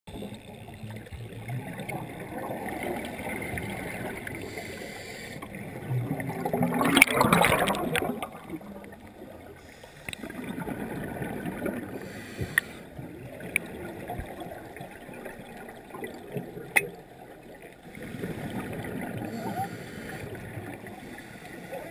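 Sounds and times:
exhaled bubbles gushing: 0:01.3 - 0:04.4, 0:05.5 - 0:09.6, 0:10.2 - 0:12.1, 0:12.9 - 0:21.2
diver breathing through regulator: 0:04.4 - 0:05.5, 0:09.6 - 0:10.4, 0:11.9 - 0:13.0, 0:17.9 - 0:21.9.

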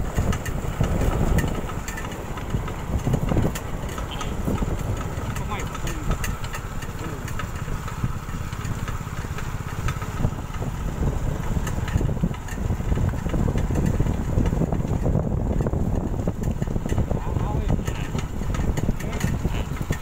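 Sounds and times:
cart rattling: 0:00.0 - 0:20.0
small motorcycle engine running: 0:00.0 - 0:20.0.

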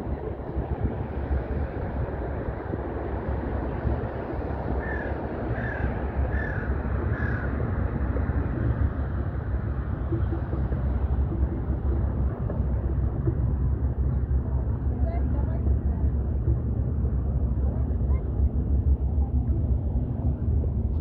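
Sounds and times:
wind rumble on microphone: 0:00.0 - 0:21.0
crow cawing: 0:04.8 - 0:07.5.

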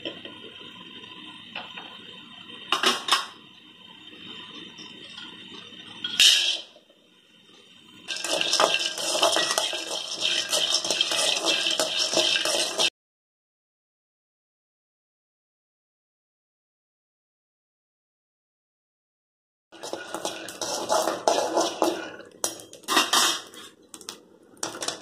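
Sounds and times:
nuts poured into a pan: 0:08.1 - 0:12.9
spatula stirring nuts in a dry pan: 0:08.1 - 0:12.9, 0:19.8 - 0:23.8.

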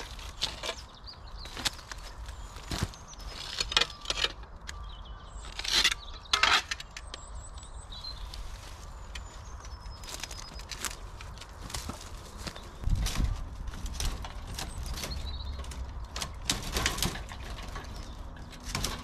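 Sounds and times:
dry stems crunching underfoot: 0:00.0 - 0:06.7, 0:07.8 - 0:19.0
boards scraping and knocking: 0:12.8 - 0:19.0.

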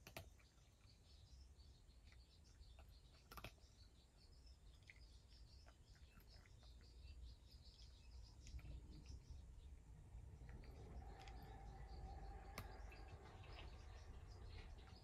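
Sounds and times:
cat crunching dry kibble: 0:03.0 - 0:03.7.

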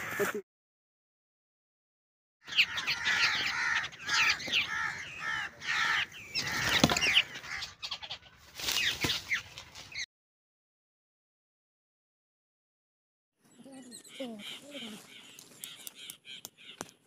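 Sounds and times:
birds chattering: 0:02.4 - 0:10.0, 0:13.4 - 0:17.0.

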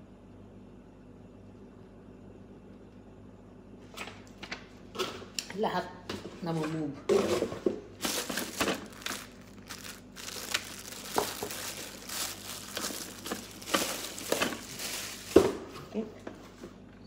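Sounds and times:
plastic bag crinkling: 0:08.0 - 0:15.7.

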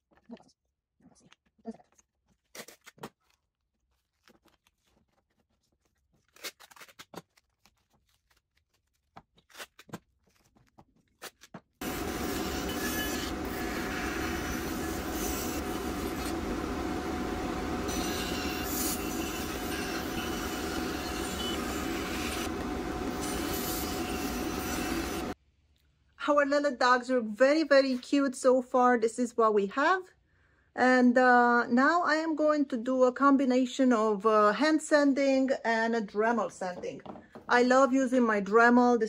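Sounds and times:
tape roll and wood handled: 0:02.0 - 0:11.8
bandsaw cutting wood: 0:11.8 - 0:25.4.

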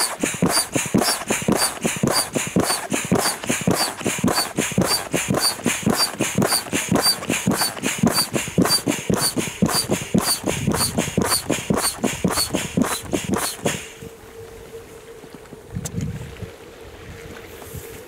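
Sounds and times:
manual air pump strokes: 0:00.0 - 0:14.0.

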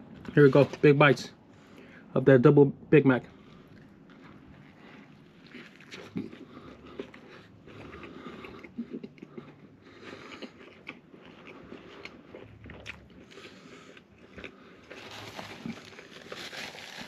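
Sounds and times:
person chewing food: 0:03.4 - 0:17.0.

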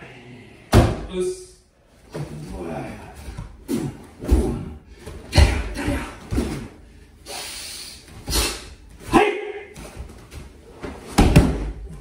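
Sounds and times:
forceful exhalations and grunts: 0:02.3 - 0:08.9
bodies thudding on mat: 0:09.8 - 0:12.0.

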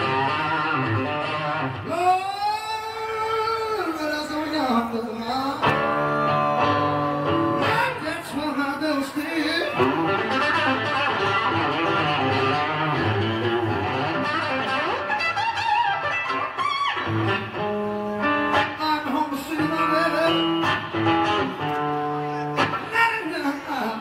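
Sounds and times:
electric guitar playing: 0:00.0 - 0:24.0.

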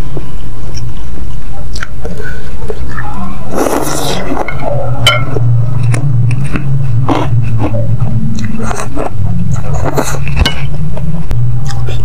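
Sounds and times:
low hum: 0:00.0 - 0:12.0
chewing noodles: 0:05.2 - 0:10.2.

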